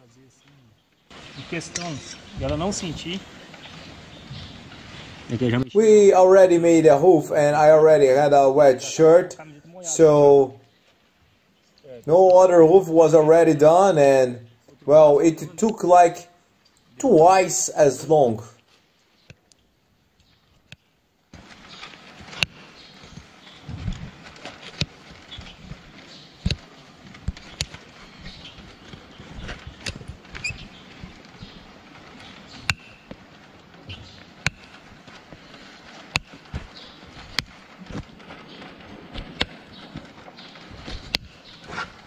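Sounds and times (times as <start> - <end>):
hoof nippers snapping: 21.4 - 42.0.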